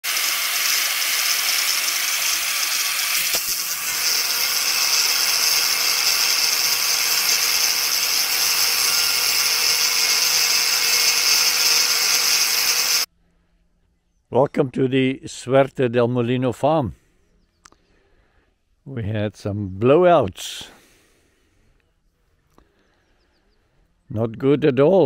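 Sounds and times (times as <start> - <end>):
angle grinder cutting steel: 0.0 - 13.1.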